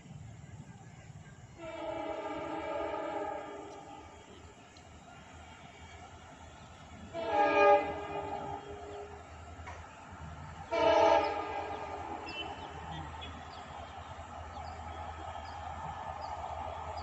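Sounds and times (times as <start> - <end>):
locomotive horn blasts: 1.5 - 4.6, 5.3 - 9.5, 10.6 - 14.2.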